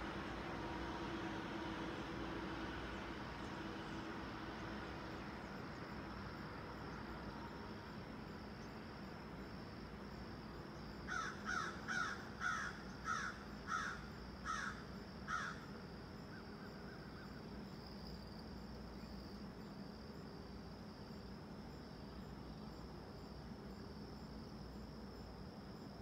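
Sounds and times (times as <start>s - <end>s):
insects trilling: 0.0s - 26.0s
crow cawing: 11.1s - 15.6s.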